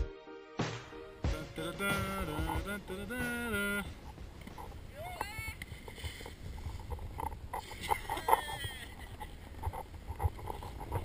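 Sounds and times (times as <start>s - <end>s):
wind rumbling on microphone: 1.8s - 11.0s
knocks and scrapes: 5.7s - 11.0s.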